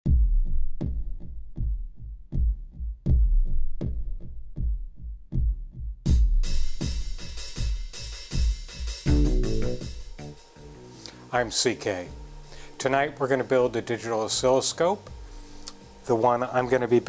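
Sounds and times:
kick drum beat: 0.1s - 10.4s
high-pitched percussion: 9.0s - 10.6s
electronic music: 9.1s - 11.0s.

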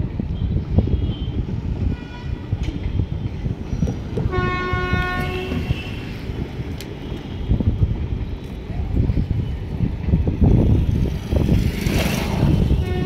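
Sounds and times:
wind buffeting microphone: 0.0s - 13.0s
train horn: 4.3s - 6.2s, 12.8s - 13.0s.

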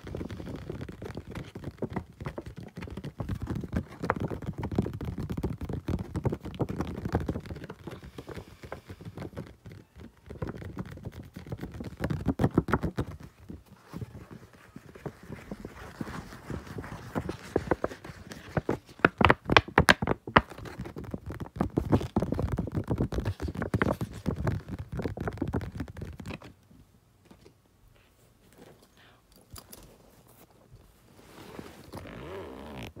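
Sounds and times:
faint rustling: 0.0s - 19.7s
fingers scratching on microphone: 0.0s - 26.5s, 31.6s - 33.0s.

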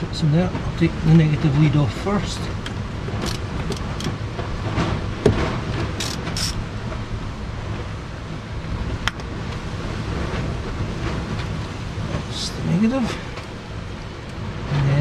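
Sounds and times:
steady low rumble: 0.0s - 15.0s
metallic clicks and scrapes: 3.2s - 4.2s, 6.0s - 6.6s.

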